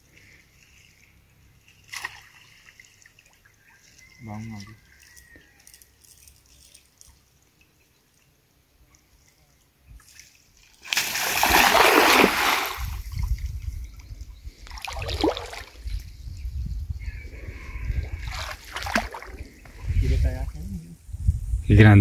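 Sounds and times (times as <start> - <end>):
cast net splashing onto water: 1.8 - 3.4, 10.1 - 13.1, 14.7 - 15.8, 18.3 - 19.4
water sloshing: 10.0 - 13.5, 14.6 - 15.9, 18.1 - 19.9.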